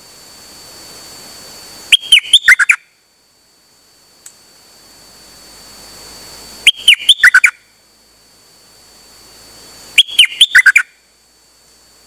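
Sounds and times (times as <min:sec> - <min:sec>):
songbird whistling: 0:01.9 - 0:02.8, 0:06.6 - 0:07.6, 0:10.0 - 0:11.0.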